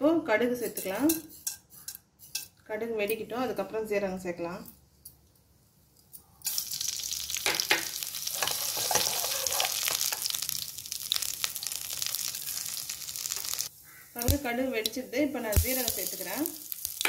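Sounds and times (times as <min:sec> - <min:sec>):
mustard seeds popping in hot oil: 0:06.5 - 0:17.0.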